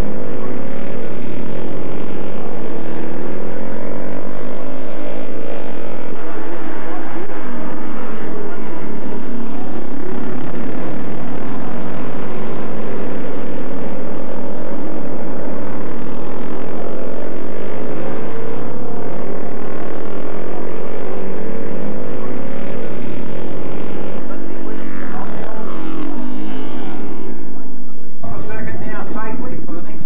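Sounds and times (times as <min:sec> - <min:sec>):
racing motorcycle engines: 0:00.0 - 0:30.0.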